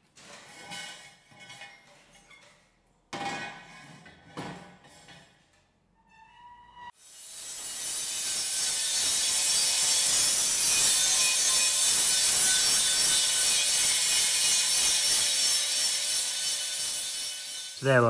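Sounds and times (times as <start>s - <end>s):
angle grinder grinding metal: 7.1s - 18.0s.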